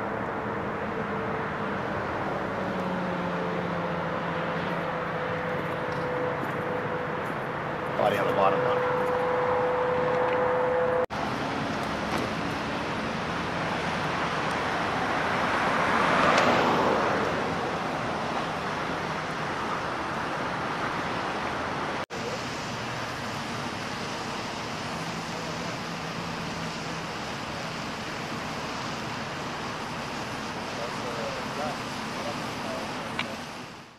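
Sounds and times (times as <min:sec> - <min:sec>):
vehicle passing by: 0:00.0 - 0:22.0
freeway traffic rumble: 0:00.0 - 0:33.9.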